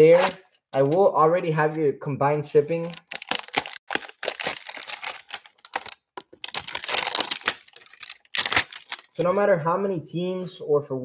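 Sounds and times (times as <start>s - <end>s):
plastic wrap crinkling: 2.7s - 9.4s.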